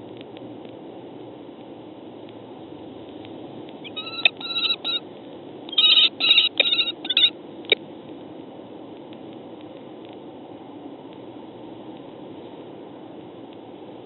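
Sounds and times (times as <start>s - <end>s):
microphone hiss: 0.0s - 14.0s
kestrels calling shrilly: 3.8s - 5.0s, 5.7s - 7.3s.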